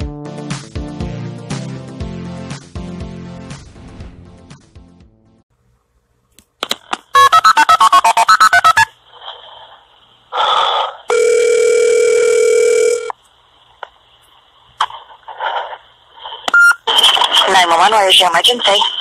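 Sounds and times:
phone ringing tone: 0:07.2 - 0:08.9, 0:11.1 - 0:13.1
keypad dialing beeps: 0:16.5 - 0:16.8.

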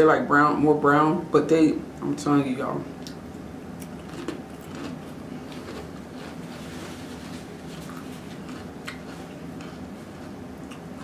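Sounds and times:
steady background hum: 0:00.0 - 0:11.0
chip crunching: 0:03.0 - 0:10.9.

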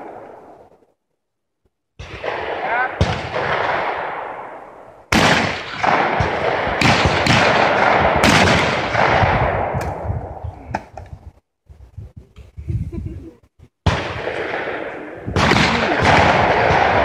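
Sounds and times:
shotgun shots echoing: 0:02.0 - 0:10.4, 0:13.8 - 0:17.0.

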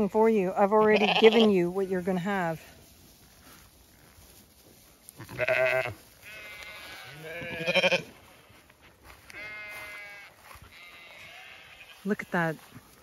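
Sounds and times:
sheep bleating: 0:00.8 - 0:01.5, 0:05.2 - 0:08.2, 0:09.1 - 0:12.1.

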